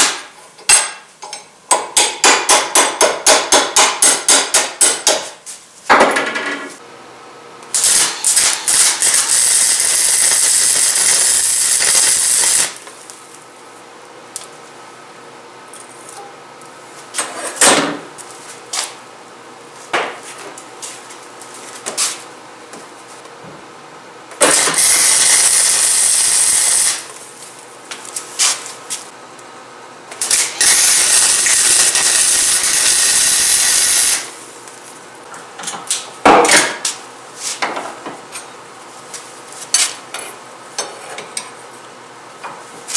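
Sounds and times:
arc welding hiss: 0:07.7 - 0:12.9, 0:24.5 - 0:27.1, 0:30.2 - 0:34.4.

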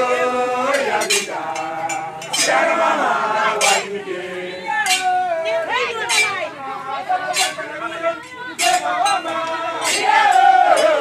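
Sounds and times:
crowd singing in held notes: 0:00.0 - 0:11.0
sharp metallic clinks: 0:01.0 - 0:02.6, 0:06.0 - 0:06.4.

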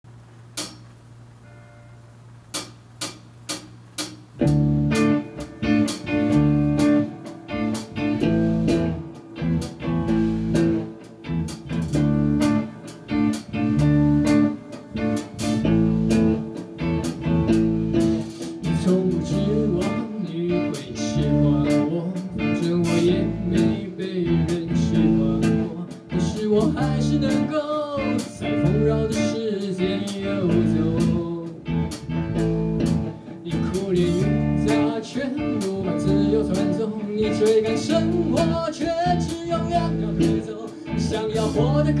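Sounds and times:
live rock band: 0:00.6 - 0:42.0
man singing: 0:18.6 - 0:31.8, 0:33.4 - 0:42.0.

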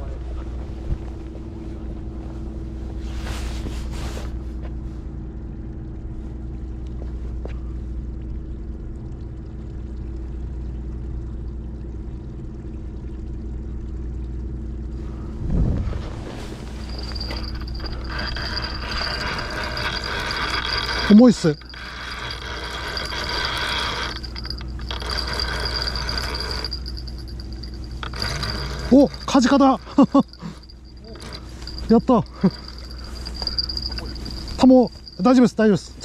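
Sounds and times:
low engine drone: 0:00.0 - 0:36.0
wind on microphone: 0:15.3 - 0:16.6.

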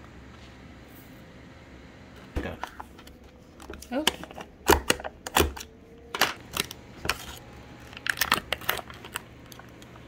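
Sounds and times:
plastic clicks and crinkles: 0:02.6 - 0:10.0.

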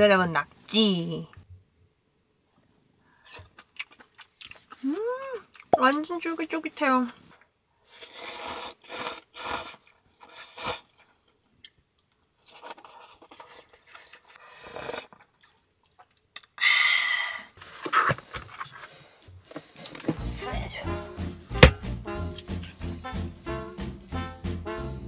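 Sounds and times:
noodles being slurped: 0:07.9 - 0:11.0, 0:12.4 - 0:15.5.

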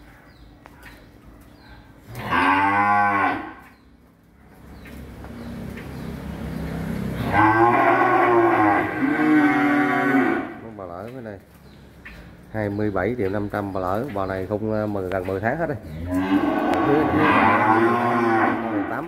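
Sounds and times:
cattle mooing: 0:02.1 - 0:03.7, 0:07.2 - 0:10.6, 0:16.0 - 0:19.0.

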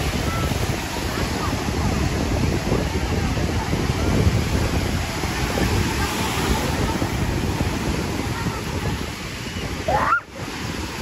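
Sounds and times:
small waves washing on sand: 0:00.0 - 0:11.0
wind buffeting microphone: 0:00.0 - 0:11.0.

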